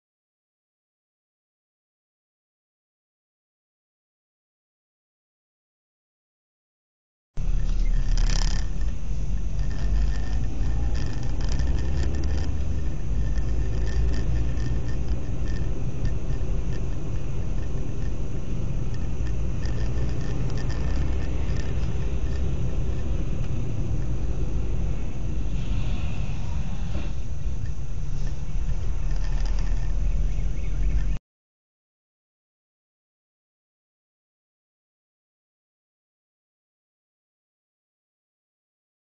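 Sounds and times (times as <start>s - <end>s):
light clicks and rattles: 7.4s - 24.2s, 27.4s - 31.2s
car engine and road noise: 7.4s - 31.2s.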